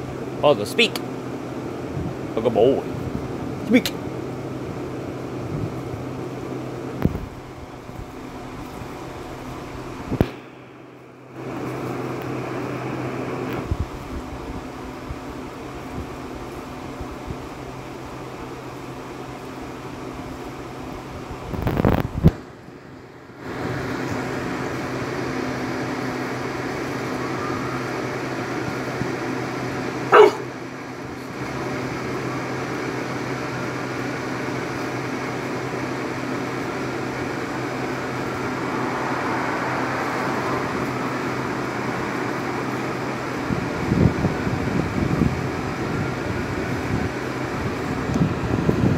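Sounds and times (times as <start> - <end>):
mechanical hum: 0.0 - 48.9
dog barking: 30.1 - 30.6.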